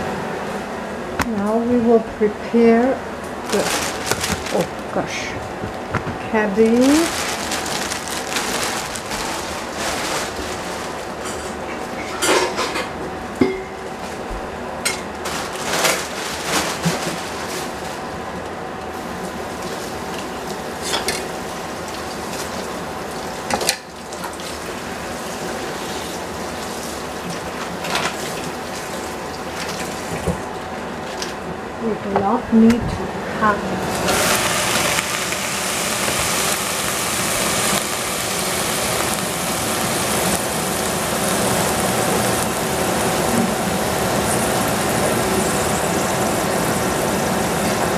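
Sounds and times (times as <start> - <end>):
faint hum: 0.0 - 23.4
plastic bag crinkling: 3.5 - 5.8, 6.4 - 11.9, 15.2 - 18.1.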